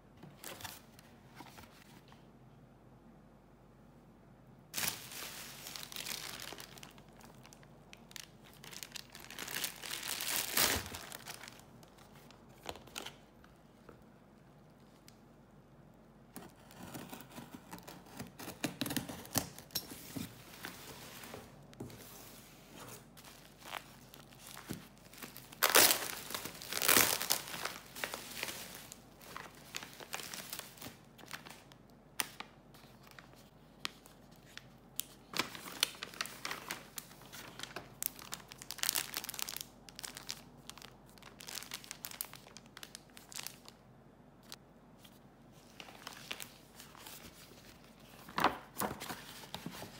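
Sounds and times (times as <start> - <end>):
plastic packaging crinkling: 4.8 - 13.4, 22.8 - 43.8, 45.6 - 49.9
packing tape tearing: 25.5 - 28.5.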